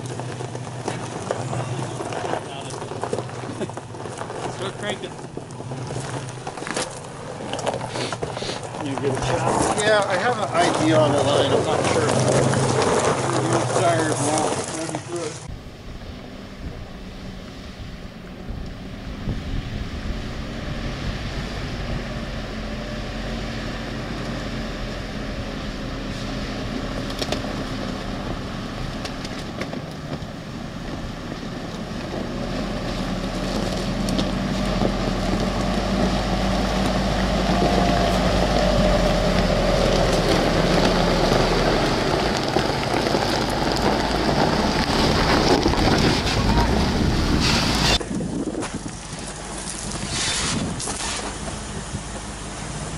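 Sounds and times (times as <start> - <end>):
tyres rolling on gravel: 0.0 - 52.9
vehicle engine running: 0.0 - 52.9.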